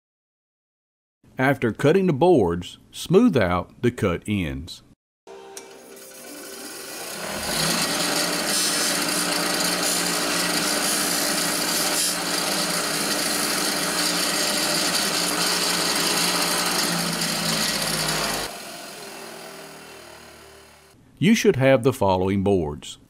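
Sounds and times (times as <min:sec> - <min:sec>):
bench grinder motor hum: 0:05.6 - 0:21.0
grinder grinding plastic: 0:05.8 - 0:21.0.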